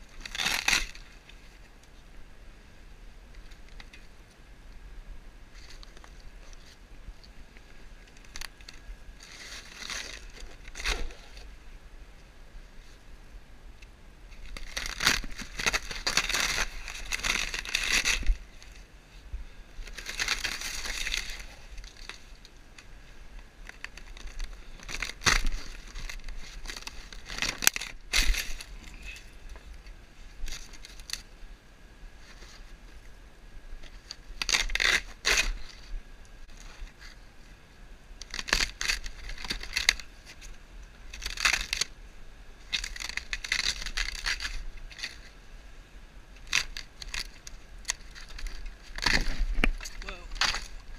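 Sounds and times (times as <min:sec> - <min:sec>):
sharp wood cracks: 0:00.0 - 0:01.4, 0:07.6 - 0:11.5, 0:13.8 - 0:18.9, 0:19.8 - 0:31.3, 0:33.8 - 0:35.9, 0:38.2 - 0:42.0, 0:42.6 - 0:45.4, 0:46.4 - 0:50.9
rotted wood breaking apart: 0:46.4 - 0:50.9.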